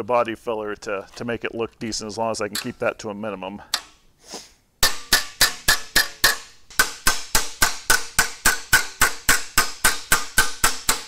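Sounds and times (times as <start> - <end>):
hammer striking sheet metal: 4.8 - 11.0.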